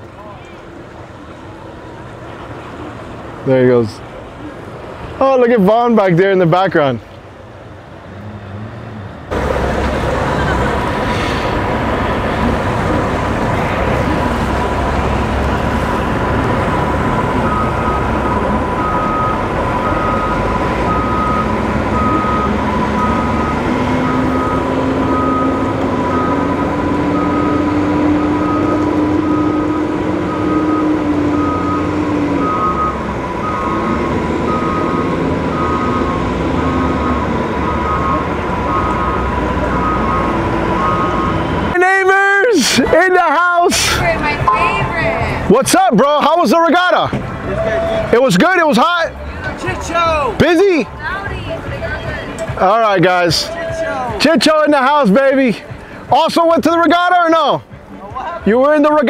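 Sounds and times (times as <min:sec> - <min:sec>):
engines running: 0:00.0 - 0:59.0
deep engine hum rising in pitch: 0:08.1 - 0:41.8
reversing alarm beeping: 0:16.7 - 0:41.8, 0:44.4 - 0:45.5.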